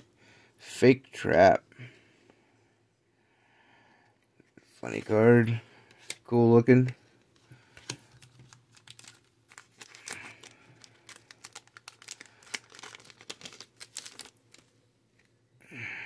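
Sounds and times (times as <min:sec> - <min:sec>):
plastic wrapper crinkling and tearing: 0:07.8 - 0:14.8.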